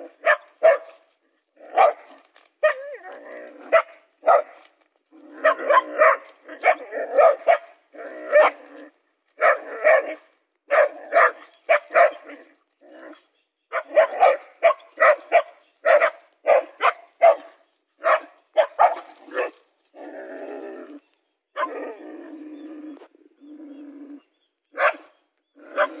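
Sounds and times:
dogs barking: 0:00.0 - 0:01.0, 0:01.6 - 0:03.0, 0:03.6 - 0:04.6, 0:05.3 - 0:08.8, 0:09.4 - 0:12.5, 0:13.7 - 0:19.6, 0:21.6 - 0:21.9, 0:24.7 - 0:26.0
dogs growling: 0:01.5 - 0:04.0, 0:05.0 - 0:10.2, 0:18.6 - 0:24.4, 0:25.5 - 0:26.0.

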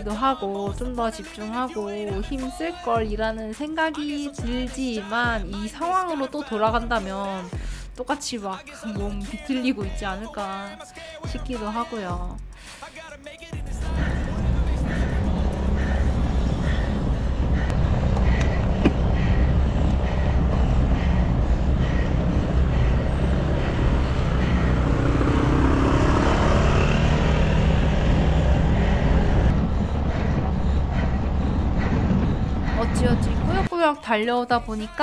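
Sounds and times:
road and wind noise: 0:13.6 - 0:33.7
motor vehicle passing: 0:13.7 - 0:33.7.

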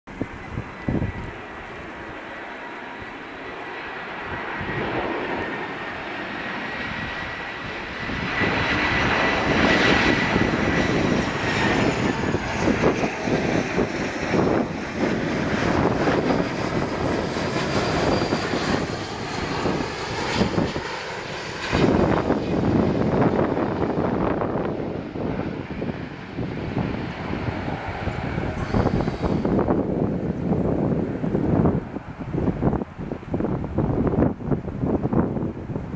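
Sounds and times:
jet engine fan whine: 0:00.1 - 0:35.9
rumbling jet roar: 0:00.1 - 0:35.9.

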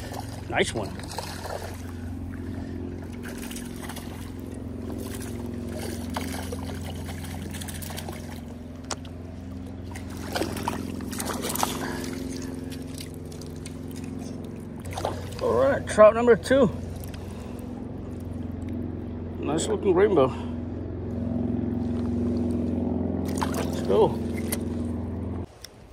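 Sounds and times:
fish splashing at water surface: 0:00.0 - 0:09.1, 0:09.7 - 0:15.6, 0:21.9 - 0:24.8
steady low hum: 0:00.0 - 0:25.9.

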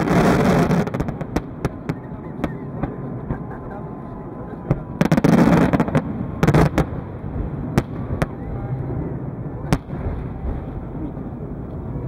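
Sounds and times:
fireworks crackle: 0:00.0 - 0:03.1, 0:05.0 - 0:08.4
fireworks bursting: 0:00.0 - 0:03.5, 0:04.7 - 0:11.0.

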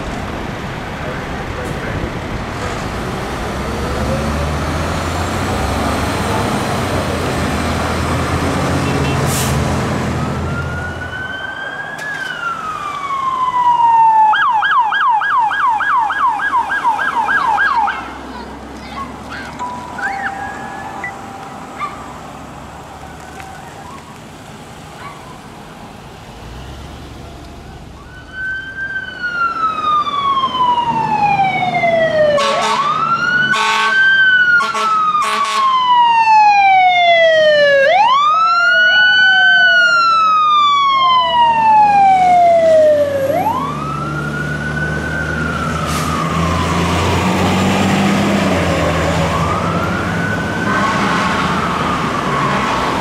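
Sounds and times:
emergency siren wailing: 0:03.4 - 0:09.3, 0:09.9 - 0:18.3, 0:19.4 - 0:24.5, 0:27.7 - 0:53.0
air horn blasts: 0:32.4 - 0:35.8.

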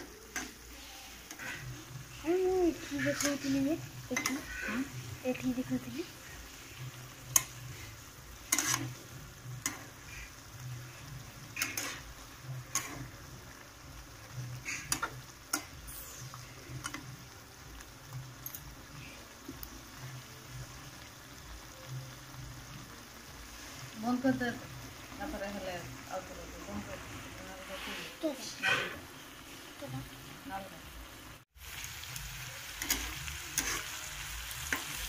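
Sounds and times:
curry frying: 0:00.0 - 0:35.0
spatula scraping frying pan: 0:00.2 - 0:13.2, 0:14.4 - 0:17.0, 0:32.8 - 0:35.0.

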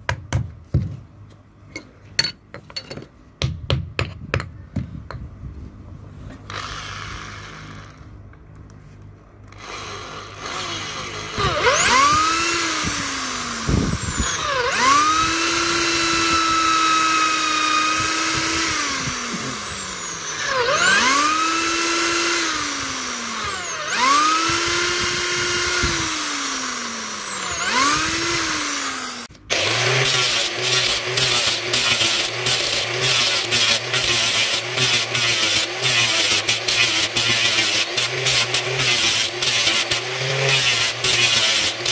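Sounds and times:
power tool motor whine: 0:06.5 - 0:08.1, 0:09.4 - 0:41.9
angle grinder grinding steel: 0:09.6 - 0:41.9.

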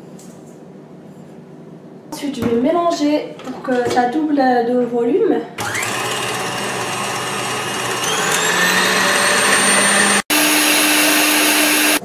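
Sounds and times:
stand mixer whisking: 0:05.6 - 0:12.0.

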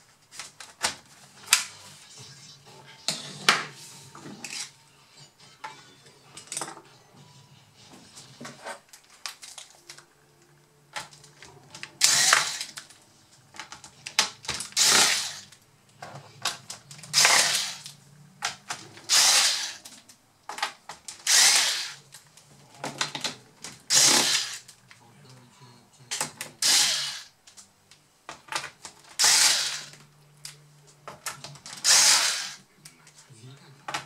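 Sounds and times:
electric screwdriver whirring: 0:12.0 - 0:12.8, 0:14.7 - 0:15.6, 0:17.1 - 0:17.9, 0:19.1 - 0:19.8, 0:21.2 - 0:22.0, 0:23.9 - 0:24.7, 0:26.6 - 0:27.3, 0:29.2 - 0:30.0, 0:31.8 - 0:32.6.

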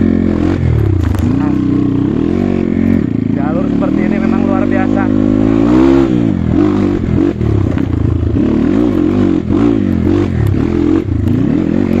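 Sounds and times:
motorcycle engine revving: 0:00.0 - 0:12.0
bike knocks and clatter: 0:00.8 - 0:01.6.

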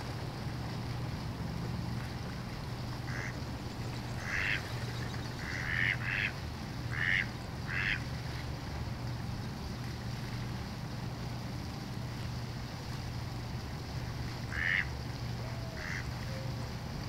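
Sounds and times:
low steady hum: 0:00.0 - 0:17.0
duck calling: 0:03.1 - 0:03.4, 0:04.2 - 0:04.6, 0:05.4 - 0:06.3, 0:06.9 - 0:08.0, 0:14.5 - 0:14.9, 0:15.6 - 0:16.1.

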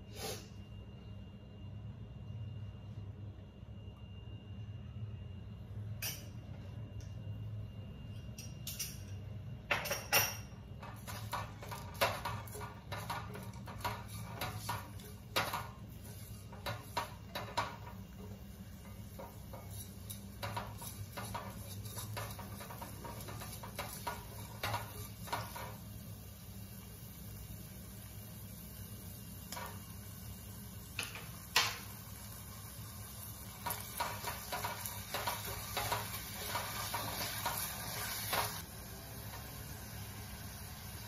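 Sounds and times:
spatula scraping metal pot: 0:19.5 - 0:25.6.

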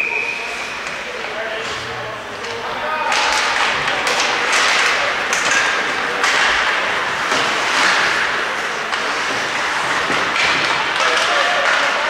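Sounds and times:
sticks clacking on puck: 0:02.4 - 0:12.0
skates scraping ice: 0:03.1 - 0:12.0.

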